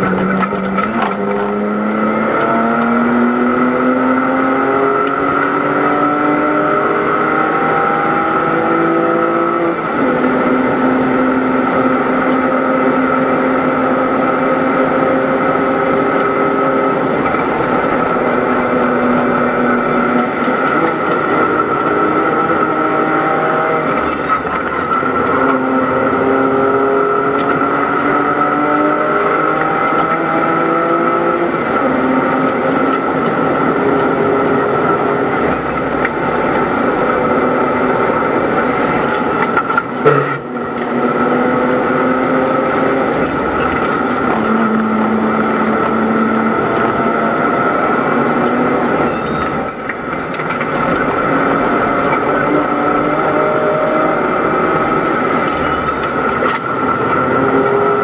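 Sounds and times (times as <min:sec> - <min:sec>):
race car engine at high speed: 0:00.0 - 0:58.0
road and wind noise: 0:00.0 - 0:58.0.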